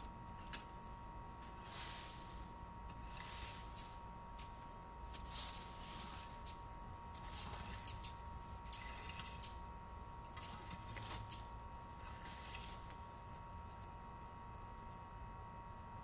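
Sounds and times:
rake scratching dry grass: 1.4 - 9.6, 10.3 - 13.0.

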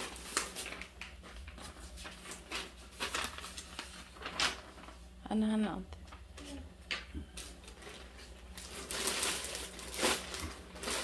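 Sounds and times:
plastic bag crinkling: 0.0 - 5.1, 7.4 - 11.0.

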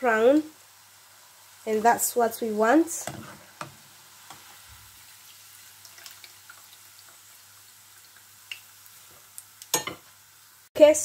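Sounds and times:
hot oil sizzling: 0.0 - 11.0
light crackles and ticks: 9.3 - 9.8.

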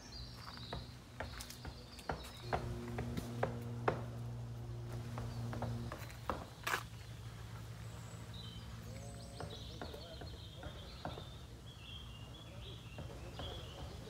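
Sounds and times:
birds chirping and warbling: 0.0 - 14.0
sharp knocks: 0.7 - 6.8
low steady hum: 2.2 - 10.0.

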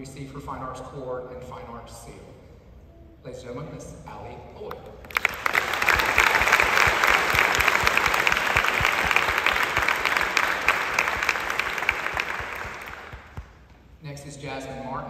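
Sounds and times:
audience applauding: 5.0 - 13.7.

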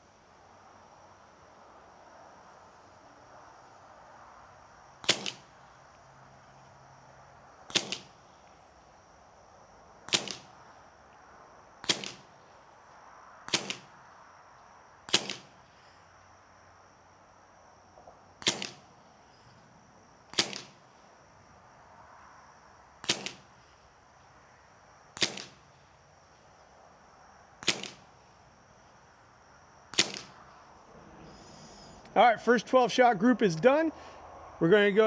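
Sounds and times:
air pistol shots: 5.0 - 5.6, 7.7 - 8.2, 10.1 - 10.6, 11.8 - 12.3, 13.5 - 14.0, 15.1 - 15.6, 18.4 - 18.9, 20.3 - 20.8, 23.0 - 23.6, 25.1 - 25.8, 27.6 - 28.2, 29.9 - 30.4.

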